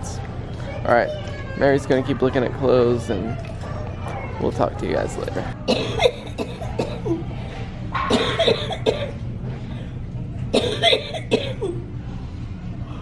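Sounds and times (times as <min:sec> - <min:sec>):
woman coughing: 0:05.7 - 0:07.2, 0:08.1 - 0:09.2, 0:10.6 - 0:11.8.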